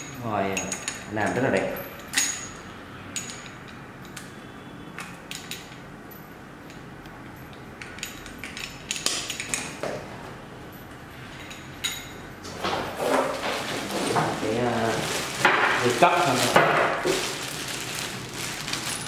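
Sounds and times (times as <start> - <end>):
faucet parts clinking on glass: 0.0 - 3.8, 11.4 - 12.3.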